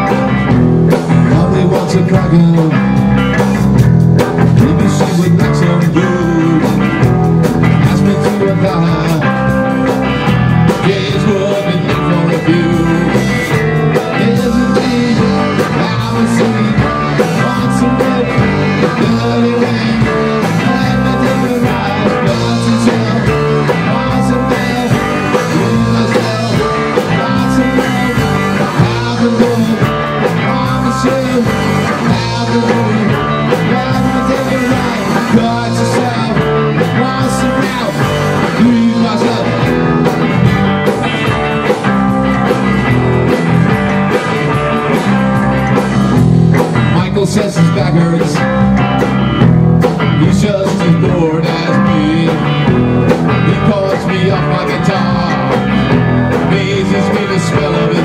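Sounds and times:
bass guitar: 0:00.0 - 0:58.0
distorted electric guitars: 0:00.0 - 0:58.0
drum kit: 0:00.0 - 0:58.0
man singing into microphone: 0:01.2 - 0:03.1, 0:04.6 - 0:07.0, 0:07.8 - 0:09.7, 0:10.7 - 0:39.8, 0:46.9 - 0:48.6, 0:50.2 - 0:52.7, 0:53.3 - 0:58.0.

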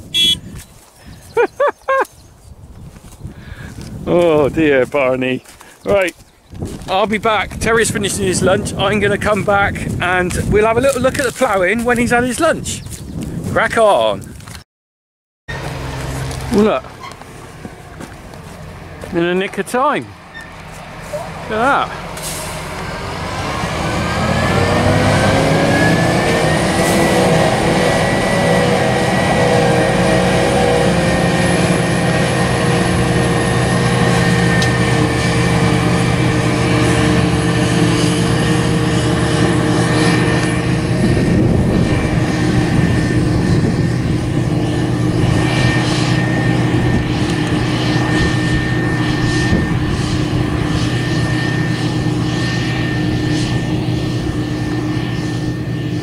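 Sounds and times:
tractor engine running: 0:00.0 - 0:01.5, 0:15.5 - 0:56.0
forage harvester engine whine: 0:00.0 - 0:02.1, 0:02.9 - 0:14.6, 0:15.5 - 0:56.0.

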